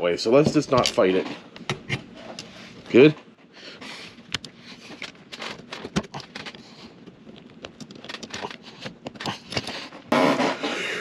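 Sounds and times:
rubber seal clicking and rubbing: 4.3 - 9.8.

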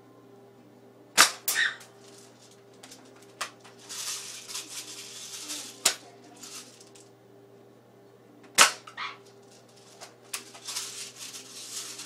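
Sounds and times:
pellet striking crack: 1.2 - 1.7, 8.5 - 9.0
rustling: 1.8 - 7.0, 9.2 - 12.0.

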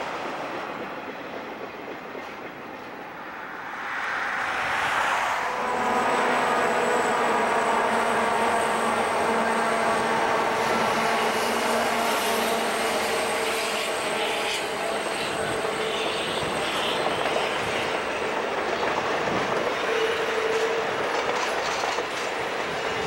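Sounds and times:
diesel locomotives droning past: 0.0 - 23.0
train cars rolling past: 0.0 - 23.0
high engine whine: 3.1 - 21.1.

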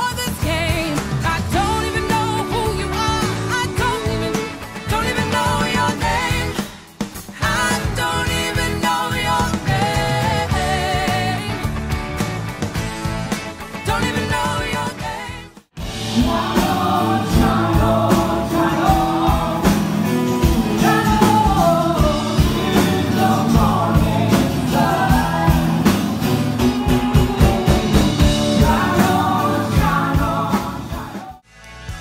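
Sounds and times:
person singing: 0.0 - 6.7, 13.9 - 31.4
rock band playing: 0.0 - 32.0.

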